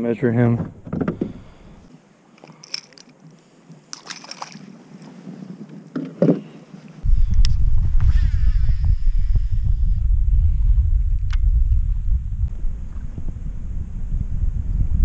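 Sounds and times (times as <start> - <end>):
gear clicking and rattling: 2.4 - 3.2
wind buffeting microphone: 7.0 - 15.0.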